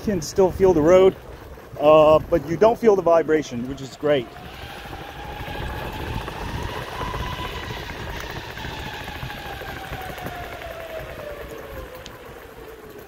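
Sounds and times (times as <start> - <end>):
wheels rumbling on road: 0.0 - 13.0
electric skateboard motor whine: 4.0 - 13.0.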